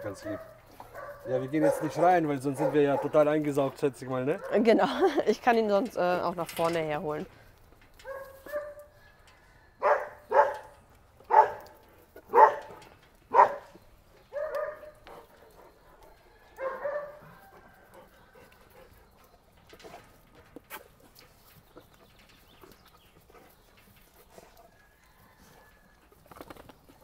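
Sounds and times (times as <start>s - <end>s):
dog barking: 0.0s - 3.2s, 4.4s - 4.6s, 8.0s - 8.9s, 9.8s - 10.7s, 11.3s - 11.7s, 12.3s - 13.7s, 14.3s - 15.0s, 16.6s - 17.4s.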